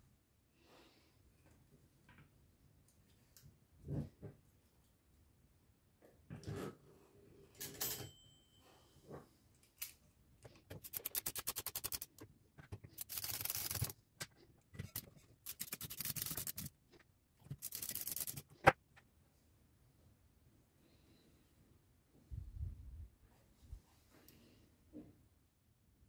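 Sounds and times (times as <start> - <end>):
typewriter ratcheting clicks: 10.7 - 12.2, 13.0 - 13.9, 14.9 - 16.7, 17.5 - 18.5
sharp typewriter click: 10.8 - 12.2.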